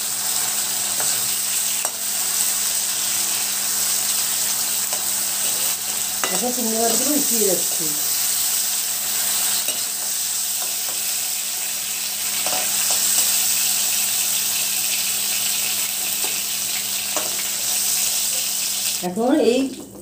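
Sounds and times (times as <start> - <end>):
prawns sizzling in hot oil: 0.0 - 19.9
metal spoon clicking on pan: 6.2 - 6.4.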